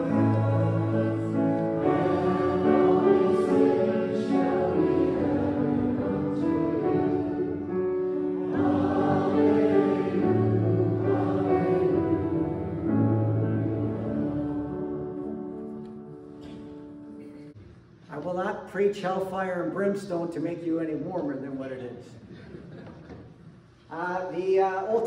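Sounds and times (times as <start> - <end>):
group singing a hymn: 0.0 - 15.9.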